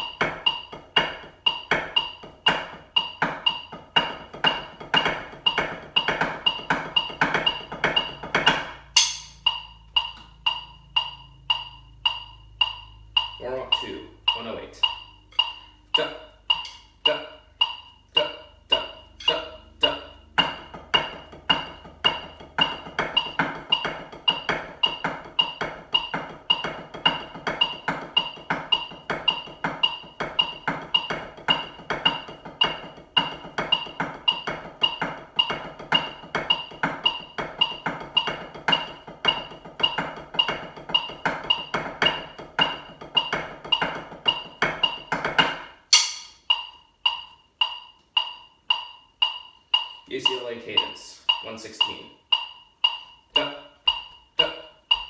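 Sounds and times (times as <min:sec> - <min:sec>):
metronome clicking: 0:00.0 - 0:55.0
snare drum sticking: 0:45.1 - 0:46.6.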